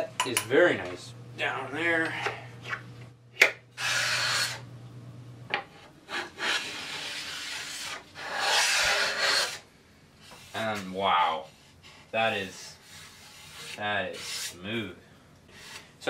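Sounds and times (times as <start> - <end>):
hand plane scraping wood: 6.1 - 9.6, 11.5 - 14.6.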